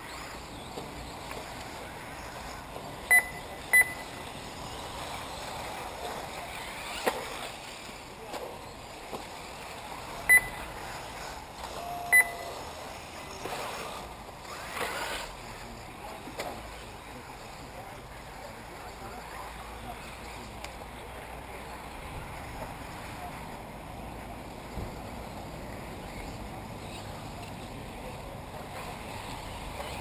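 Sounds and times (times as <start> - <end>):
short electronic beeps: 3.1 - 4.2, 10.3 - 10.6, 11.9 - 12.6.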